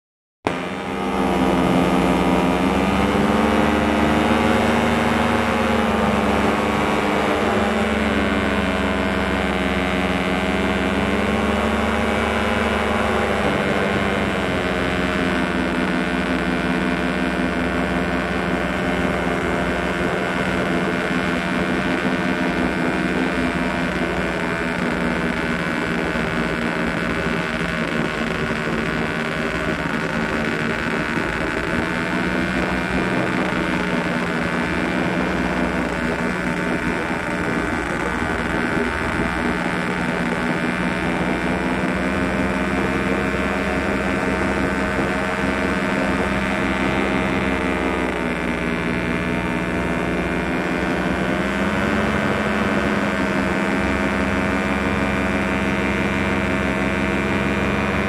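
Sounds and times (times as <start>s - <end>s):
small aircraft motor buzzing: 0.5s - 58.0s.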